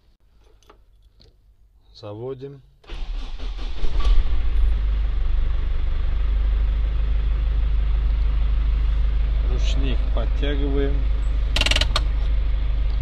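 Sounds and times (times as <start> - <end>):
diesel engine starting and idling: 2.8 - 13.0.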